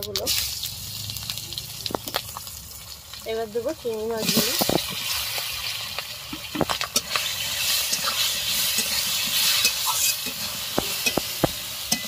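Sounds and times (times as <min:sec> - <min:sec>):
prawns sizzling in hot oil: 0:00.0 - 0:12.0
metal spatula scraping a pan: 0:04.2 - 0:12.0.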